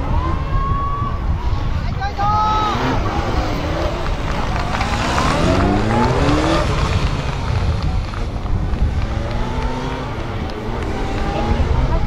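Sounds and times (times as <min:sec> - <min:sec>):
motorcycle engine revving: 0:02.5 - 0:12.0.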